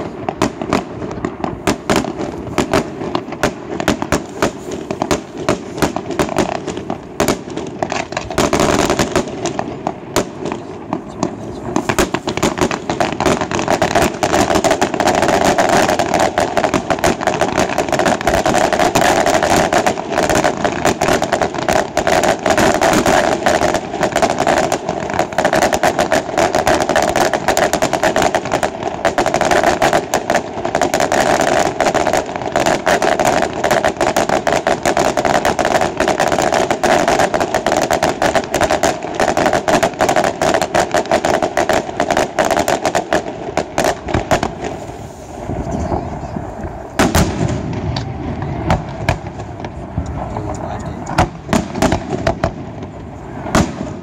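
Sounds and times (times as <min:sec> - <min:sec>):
fireworks bangs and crackle: 0:00.0 - 0:54.0.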